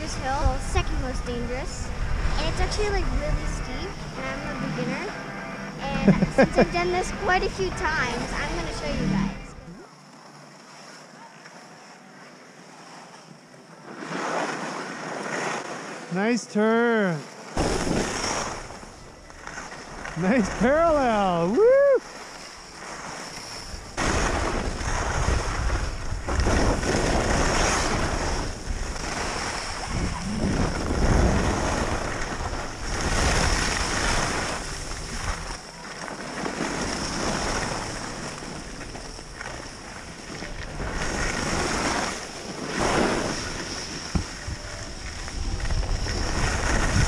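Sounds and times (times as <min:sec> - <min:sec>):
wind buffeting microphone: 0:00.0 - 0:09.6, 0:23.5 - 0:35.6, 0:36.5 - 0:47.0
skis sliding on snow: 0:13.8 - 0:15.9, 0:17.6 - 0:47.0.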